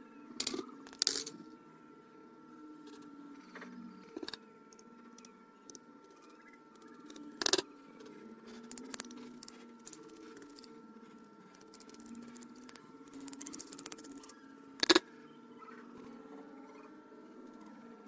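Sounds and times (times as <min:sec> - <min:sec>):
faint steady hum: 0:00.0 - 0:18.0
metal tool tapping circuit board: 0:07.4 - 0:07.6, 0:08.6 - 0:10.7, 0:14.8 - 0:15.0.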